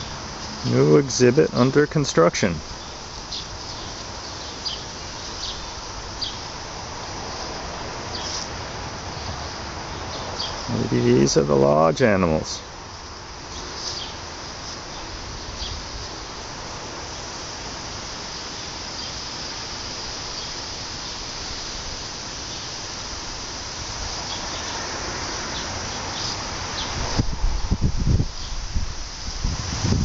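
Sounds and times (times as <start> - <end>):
insects buzzing: 0.0 - 30.0
wind hitting microphone: 26.8 - 30.0.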